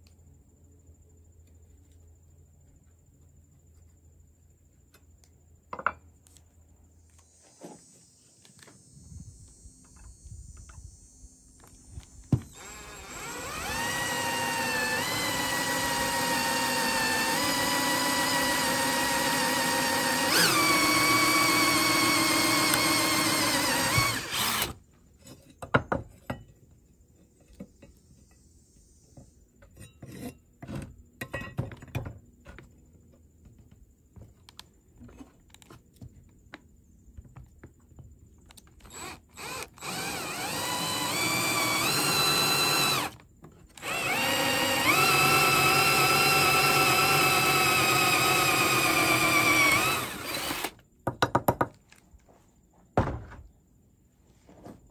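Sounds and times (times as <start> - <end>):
cordless drill boring through metal: 12.4 - 24.8, 38.9 - 43.2, 43.8 - 50.8.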